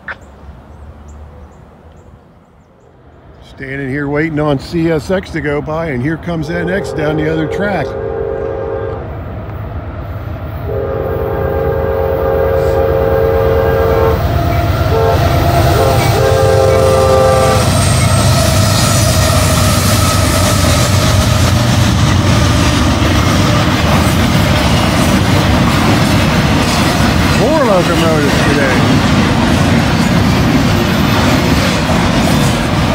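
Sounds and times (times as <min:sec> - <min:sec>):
train rumbling past: 0:00.0 - 0:32.9
locomotive horn blasts: 0:06.5 - 0:09.2, 0:10.6 - 0:20.6.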